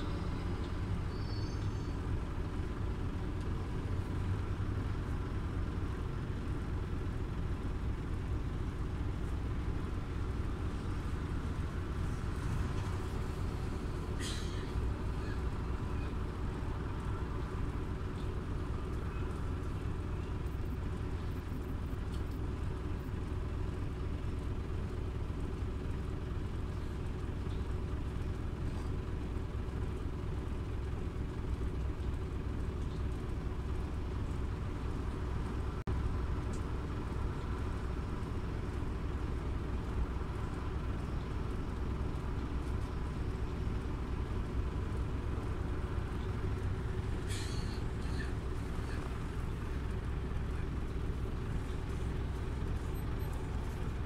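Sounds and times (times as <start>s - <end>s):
bus engine and road rumble: 0.0s - 54.0s
short hiss: 14.2s - 14.8s, 47.3s - 48.2s.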